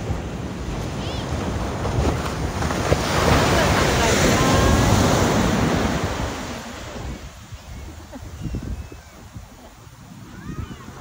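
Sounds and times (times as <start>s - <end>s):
surf breaking on beach: 0.0s - 11.0s
wind buffeting microphone: 0.0s - 11.0s.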